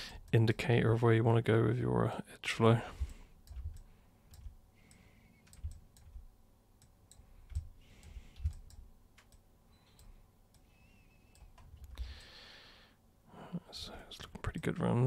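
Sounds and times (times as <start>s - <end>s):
computer mouse clicks: 3.4s - 6.2s, 6.8s - 10.7s, 11.3s - 12.3s.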